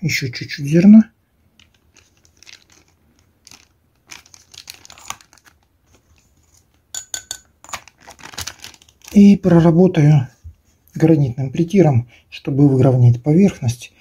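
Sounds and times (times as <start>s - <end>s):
plastic bag crinkling: 1.6s - 6.8s, 7.6s - 9.5s.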